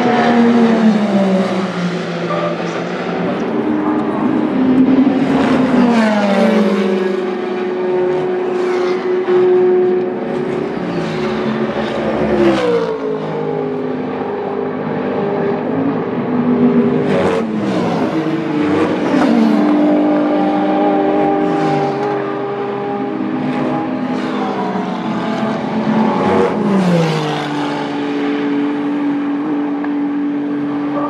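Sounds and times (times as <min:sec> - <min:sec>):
racing cars passing at speed: 0:00.0 - 0:31.0.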